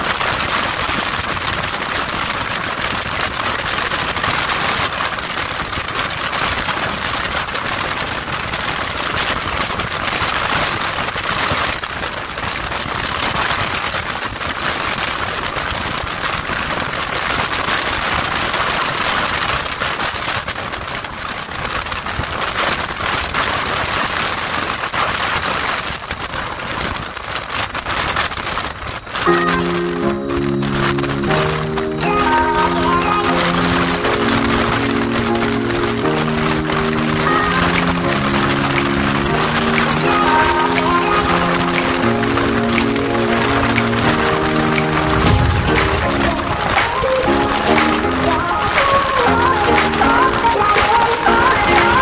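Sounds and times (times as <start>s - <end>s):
wind rushing over microphone: 44.2s - 47.2s.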